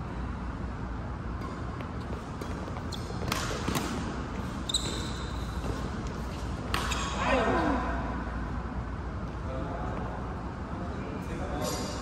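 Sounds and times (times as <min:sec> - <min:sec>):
low hum of hall: 0:00.0 - 0:12.0
racket hitting shuttlecock: 0:01.4 - 0:07.2
sneaker squeak on court floor: 0:01.4 - 0:07.2.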